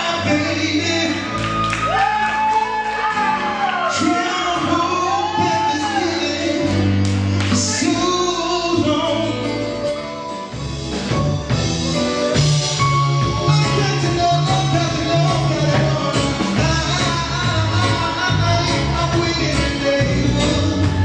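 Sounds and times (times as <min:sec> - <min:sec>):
man singing lead vocals: 0:00.0 - 0:02.3, 0:03.8 - 0:10.2, 0:12.7 - 0:21.0
bass: 0:00.0 - 0:21.0
keyboards: 0:00.0 - 0:21.0
backing singers: 0:13.4 - 0:21.0.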